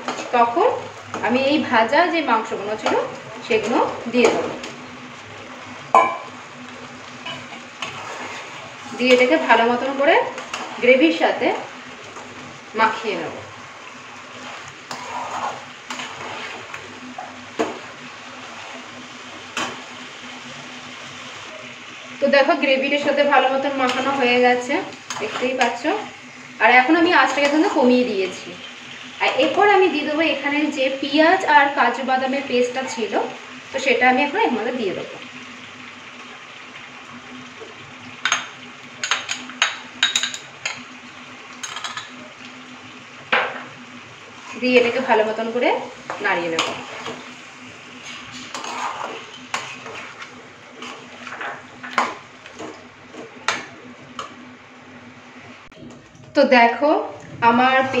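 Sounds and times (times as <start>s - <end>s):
gravy sizzling and bubbling: 0.0s - 58.0s
spatula clanking on pan: 5.9s - 6.3s
spatula scraping a pan: 7.2s - 9.4s, 14.3s - 16.8s, 47.9s - 52.7s.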